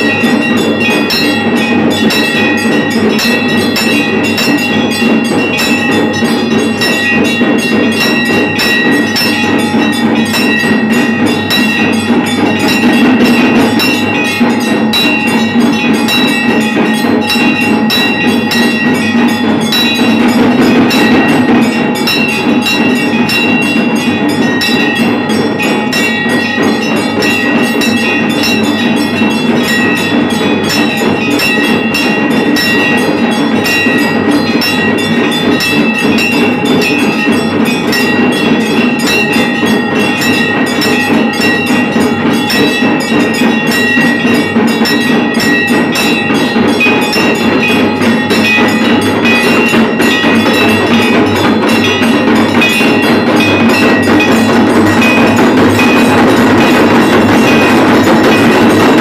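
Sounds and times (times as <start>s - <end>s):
bells rung rapidly: 0.0s - 59.0s
clattering percussion: 0.0s - 59.0s.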